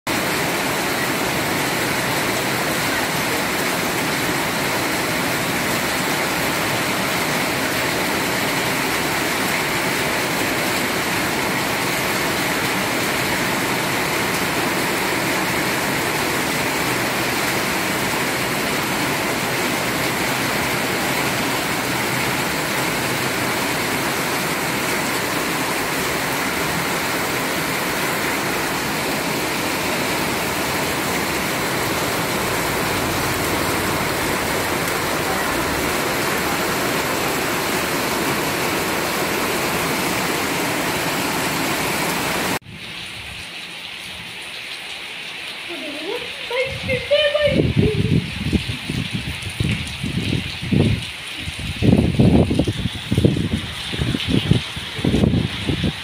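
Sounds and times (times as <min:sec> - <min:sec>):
heavy rain pouring: 0:00.0 - 0:56.0
water running off roof edge: 0:00.1 - 0:42.7.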